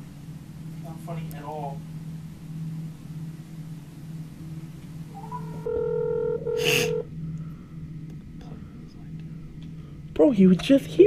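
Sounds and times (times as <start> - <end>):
low steady hum: 0.0 - 11.0
electronic call tones: 5.1 - 7.1.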